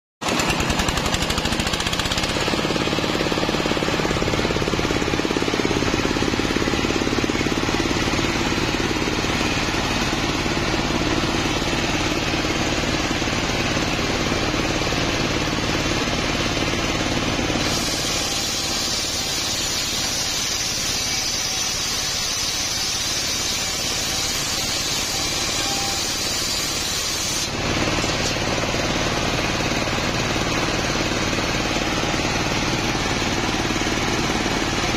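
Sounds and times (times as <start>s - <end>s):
saw blade cutting wood: 0.2s - 13.7s, 17.4s - 28.8s
engine knocking steadily: 0.2s - 21.8s, 27.5s - 34.9s.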